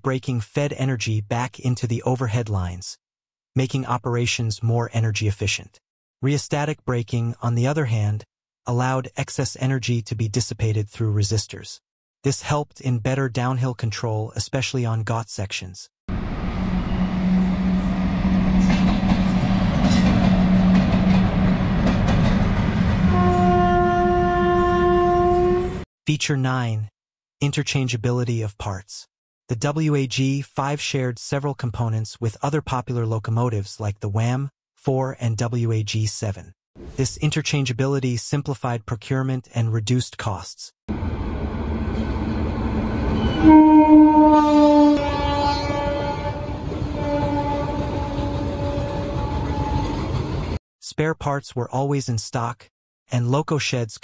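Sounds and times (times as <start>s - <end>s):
electric locomotive hum: 16.1s - 25.8s, 40.9s - 50.6s
train horn blast: 16.5s - 19.7s, 23.0s - 25.8s, 41.8s - 50.1s
train wheels clattering on rails: 18.6s - 22.7s.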